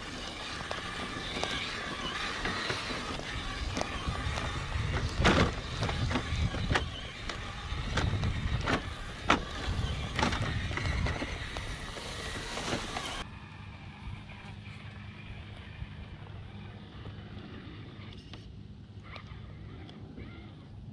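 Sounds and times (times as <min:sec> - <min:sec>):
toy car running over rock: 0:00.0 - 0:13.2.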